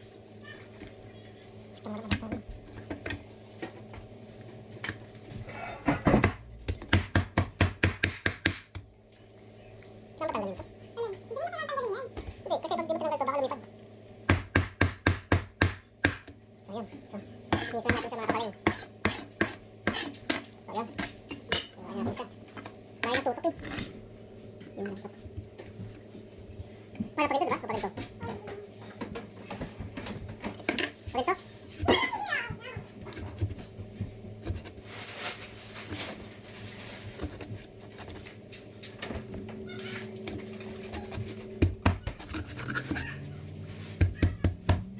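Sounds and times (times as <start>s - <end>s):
knife scraping fish: 18.7s - 20.2s, 36.7s - 38.4s, 40.4s - 43.2s.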